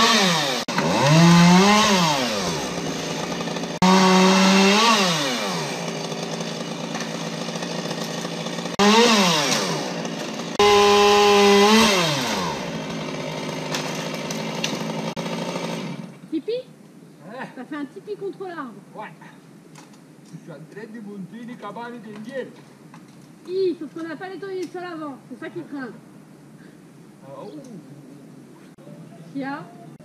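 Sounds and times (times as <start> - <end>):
chainsaw revving: 0.0 - 16.2.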